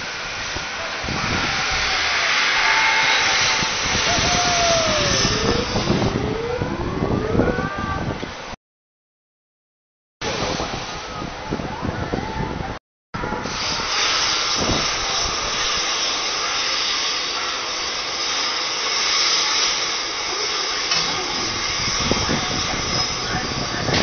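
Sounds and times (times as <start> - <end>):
rushing air hiss: 13.4 - 24.0.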